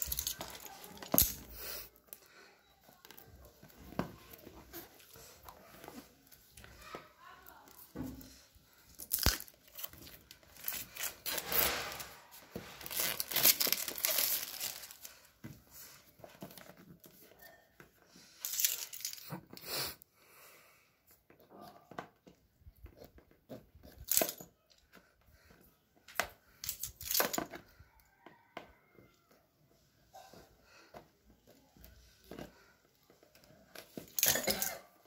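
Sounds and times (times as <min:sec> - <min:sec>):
plastic wrap crinkling: 0:00.0 - 0:01.5, 0:08.9 - 0:15.3
packaging being torn open: 0:09.0 - 0:12.2, 0:12.8 - 0:15.1.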